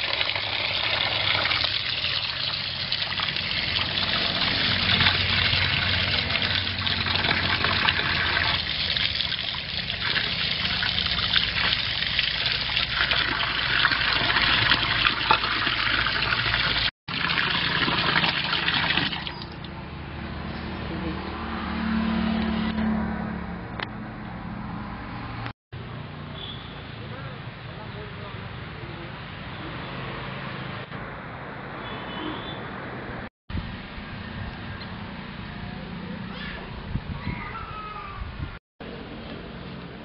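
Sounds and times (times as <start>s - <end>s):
water splashing into plastic bowl: 0.0s - 19.7s.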